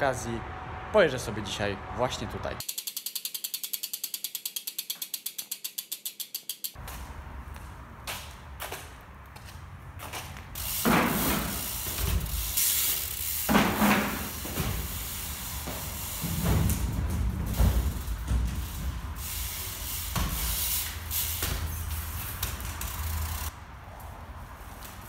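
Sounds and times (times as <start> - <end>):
bicycle hub ratchet clicking: 2.6 - 6.8, 10.5 - 16.8, 17.6 - 23.5.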